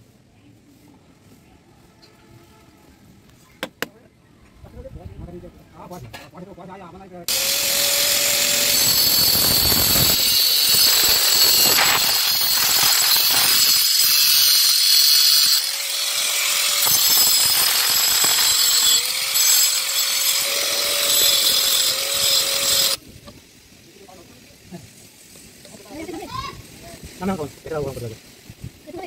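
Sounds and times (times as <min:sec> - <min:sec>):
angle grinder cutting plastic pipe: 0:07.3 - 0:23.0.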